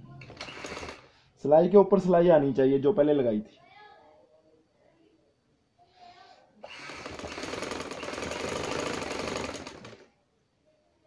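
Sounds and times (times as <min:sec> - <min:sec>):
sewing machine stitching: 0:00.2 - 0:01.1, 0:06.6 - 0:10.1.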